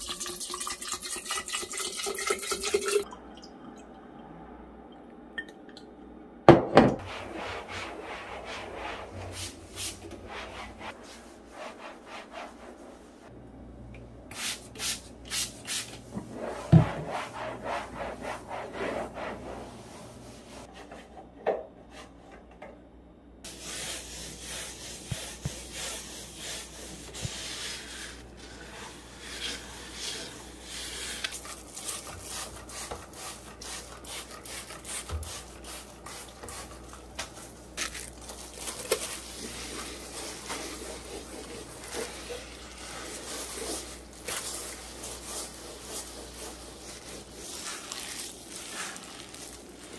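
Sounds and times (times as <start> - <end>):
cloth rubbing surfaces: 7.0 - 13.3.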